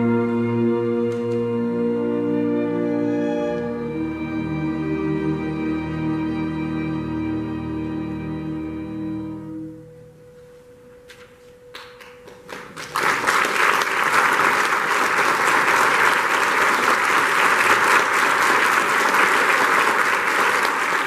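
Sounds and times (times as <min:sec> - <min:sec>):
audience applause: 0:12.0 - 0:21.0.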